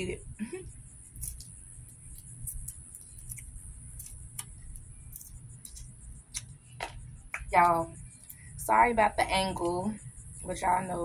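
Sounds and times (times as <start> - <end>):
crab shell cracking: 2.2 - 5.9.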